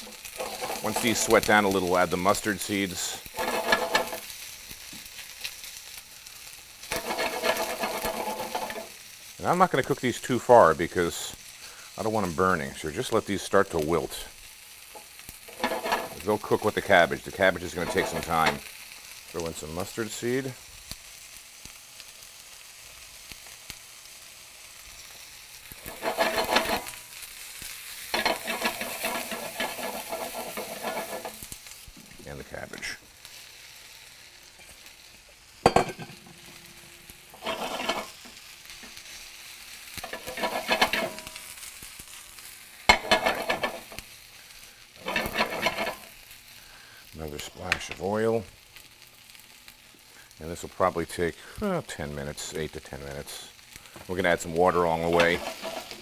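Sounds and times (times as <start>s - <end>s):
wooden spoon scraping a pan: 0.0s - 4.4s, 6.8s - 9.0s, 14.9s - 18.7s, 25.7s - 27.2s, 27.9s - 31.6s, 37.3s - 39.2s, 39.9s - 41.7s, 42.9s - 44.1s, 45.0s - 46.2s, 54.7s - 56.0s
onions sizzling in oil: 0.0s - 56.0s.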